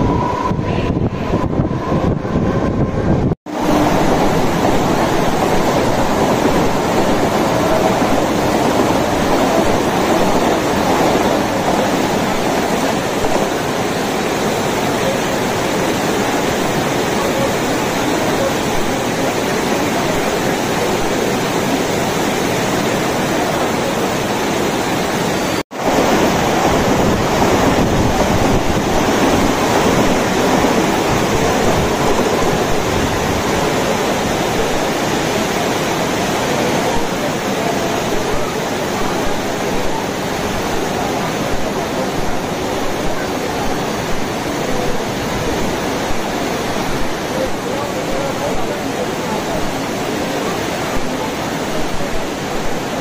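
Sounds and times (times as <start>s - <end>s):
wind on microphone: 0.0s - 37.4s
heavy rain pouring: 0.0s - 53.0s.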